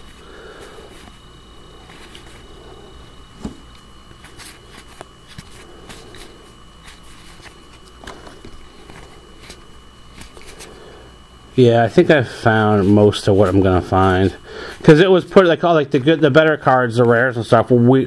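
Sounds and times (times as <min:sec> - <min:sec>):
background hum: 0:00.0 - 0:18.0
cards clicking and sliding: 0:04.2 - 0:10.8.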